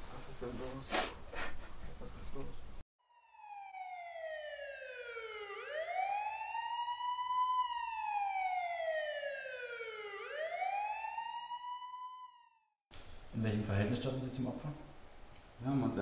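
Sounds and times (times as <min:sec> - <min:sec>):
police siren wailing: 0:03.0 - 0:12.8.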